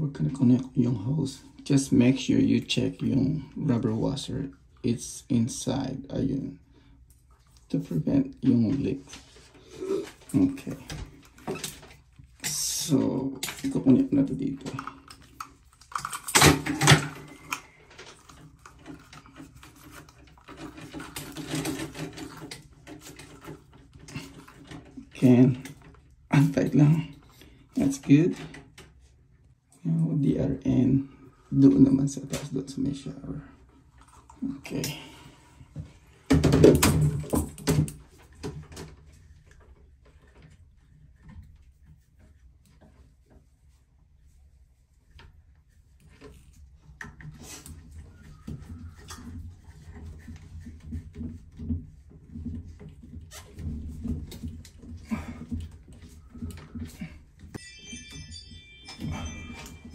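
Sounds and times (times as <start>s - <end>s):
metal shower hose clattering: 7.4s - 29.1s, 33.8s - 59.9s.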